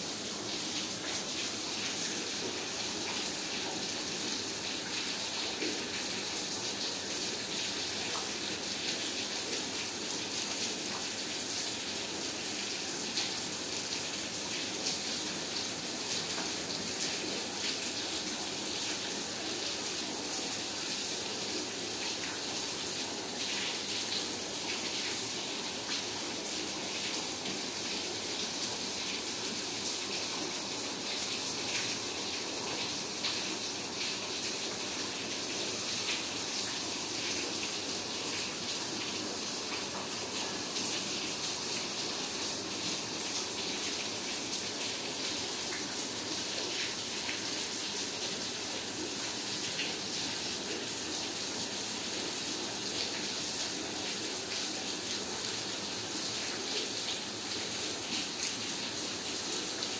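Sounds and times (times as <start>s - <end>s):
rainwater running: 0.0s - 59.9s.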